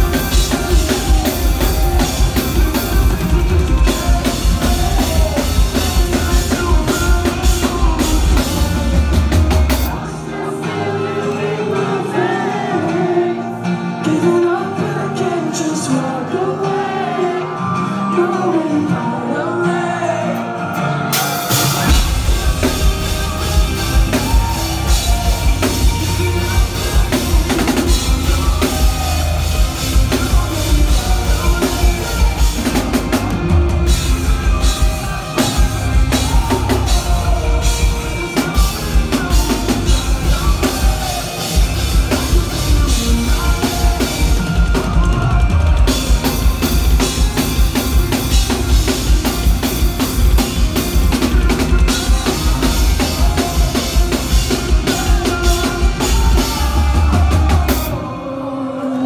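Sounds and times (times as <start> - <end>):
rapid bass drum strokes: 0.0 - 10.1, 21.2 - 58.0
rock band playing: 0.0 - 59.0.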